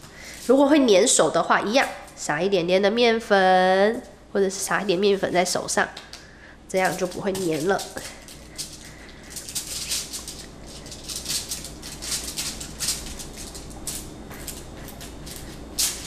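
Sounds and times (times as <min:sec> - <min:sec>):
aluminium foil crinkling: 0:06.7 - 0:16.0.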